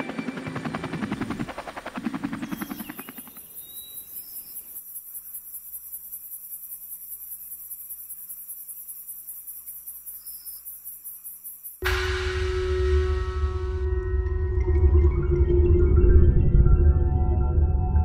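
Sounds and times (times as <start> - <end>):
helicopter rotor beat: 0.0 - 6.3
insects chirring: 0.4 - 14.0.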